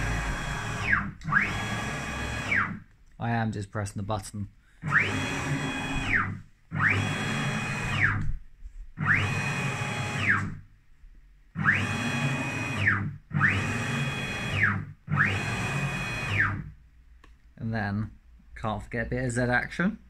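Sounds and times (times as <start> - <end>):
stepper motor whine: 0.0 - 2.8, 4.8 - 8.3, 9.0 - 10.6, 11.6 - 16.7.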